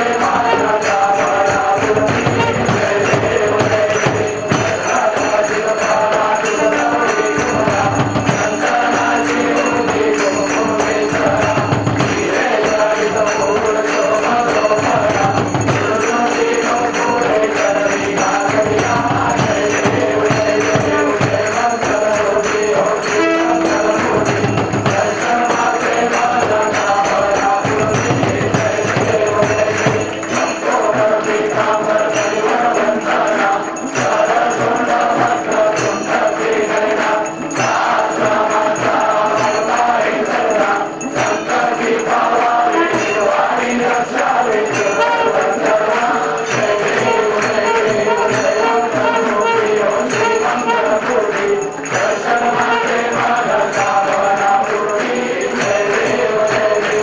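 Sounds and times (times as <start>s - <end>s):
chorus singing devotional song: 0.0s - 57.0s
jingling percussion: 0.0s - 57.0s
steady held note: 23.0s - 25.0s
clapping: 42.4s - 57.0s.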